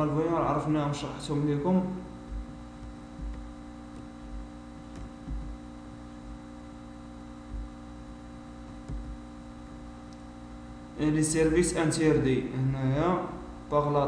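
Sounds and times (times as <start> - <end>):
electrical mains hum: 0.0 - 14.0
soft low thumps: 2.1 - 10.1.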